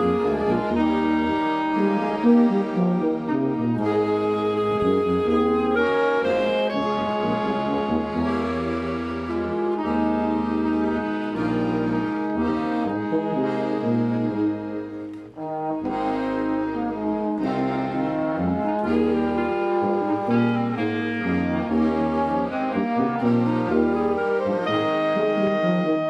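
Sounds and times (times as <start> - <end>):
small brass and accordion band playing: 0.0 - 26.0
tuba bass line: 0.0 - 26.0.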